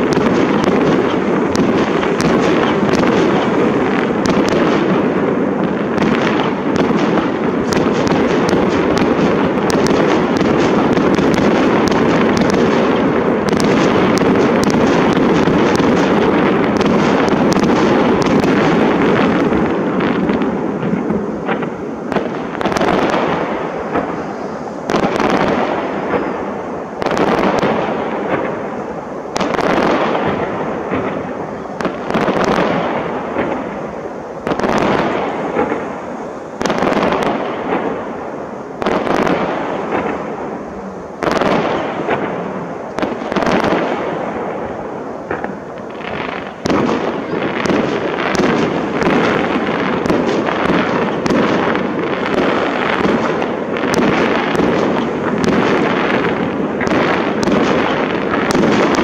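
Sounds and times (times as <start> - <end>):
firework bangs: 0.0 - 59.0
firework crackling: 0.0 - 59.0.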